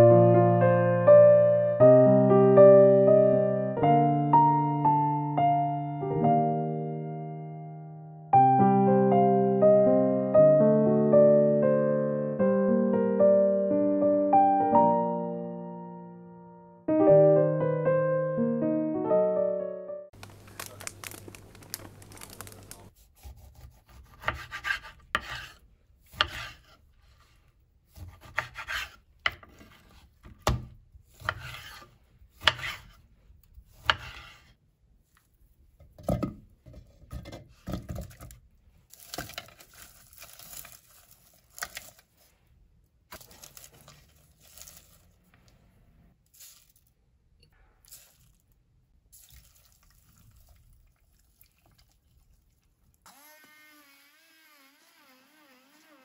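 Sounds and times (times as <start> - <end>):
rubbing and handling noises: 20.2 - 23.4, 43.1 - 47.0.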